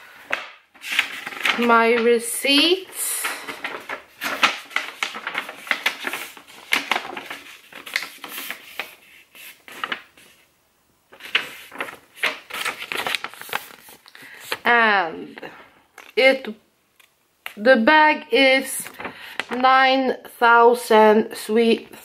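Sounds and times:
paper rustling and crinkling: 0.2 - 10.5, 11.1 - 14.7, 18.8 - 19.6.

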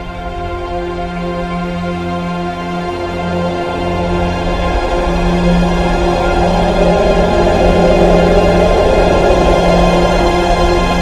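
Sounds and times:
tense film score music: 0.0 - 11.0.

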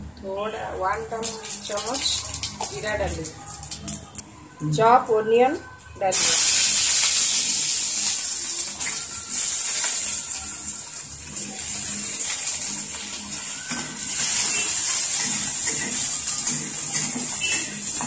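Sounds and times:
onions sizzling in hot oil: 0.9 - 3.9, 6.1 - 18.0.

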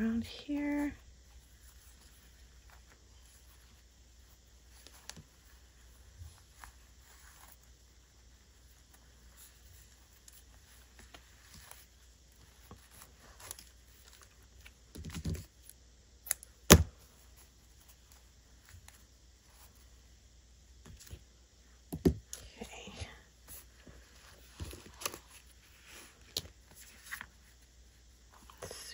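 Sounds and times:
ribbon rustling: 0.0 - 15.7, 22.9 - 28.9.

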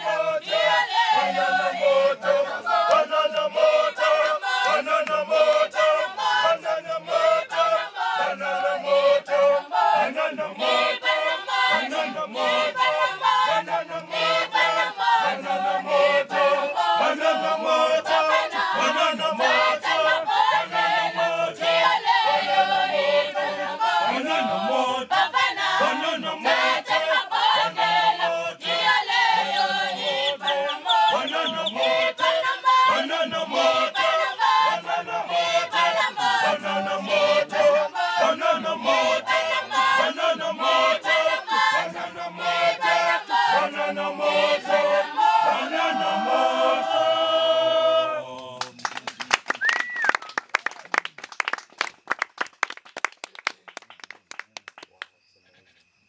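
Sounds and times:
group singing in harmony: 0.0 - 48.7
applause: 48.3 - 55.2
short whistle: 49.6 - 50.3.

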